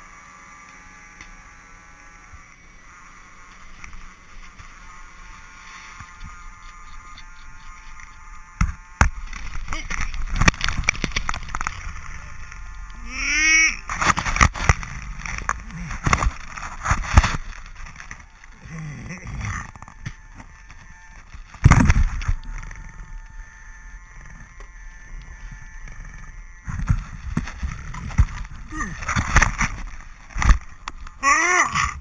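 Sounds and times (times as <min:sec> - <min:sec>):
fan whirring: 0:00.0 - 0:32.0
person crying out: 0:13.0 - 0:13.8, 0:28.6 - 0:29.1, 0:31.2 - 0:32.0.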